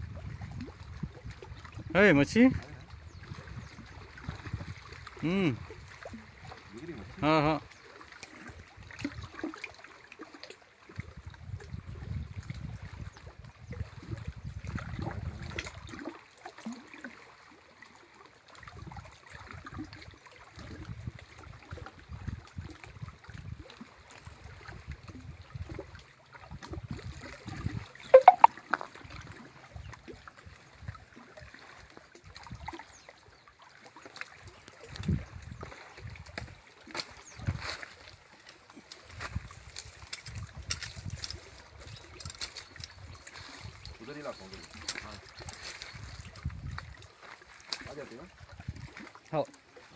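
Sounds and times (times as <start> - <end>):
wind buffeting microphone: 0.0 - 5.0, 11.0 - 15.8, 26.5 - 27.9, 34.9 - 36.6, 37.2 - 37.8, 39.1 - 42.4, 45.6 - 47.0
small waves lapping at shore: 0.0 - 49.9.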